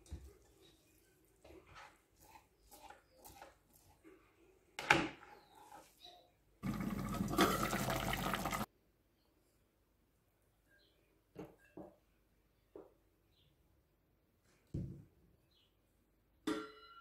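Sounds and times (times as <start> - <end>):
water pouring onto noodles: 6.6 - 8.7.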